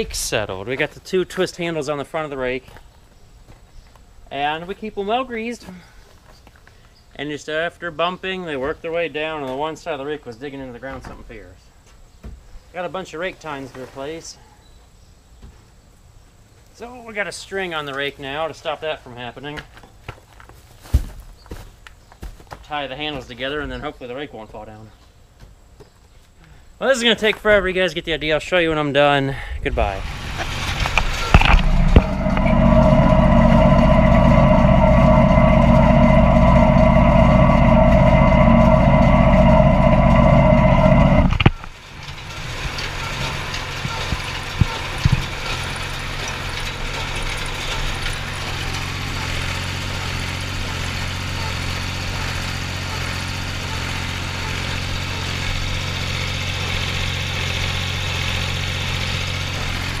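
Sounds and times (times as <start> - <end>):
tractor engine running: 0.0 - 1.4, 30.0 - 60.0
steady mechanical whine: 0.0 - 1.6, 29.6 - 42.9.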